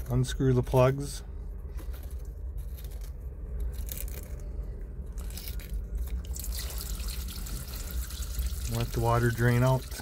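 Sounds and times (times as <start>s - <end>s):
water pouring and splashing: 6.3s - 10.0s.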